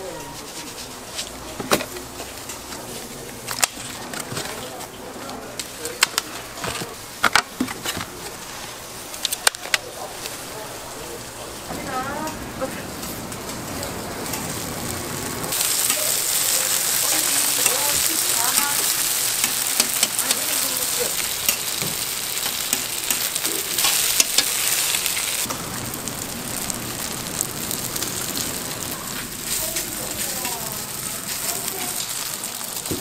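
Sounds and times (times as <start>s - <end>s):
food deep-frying in hot oil: 8.2s - 33.0s.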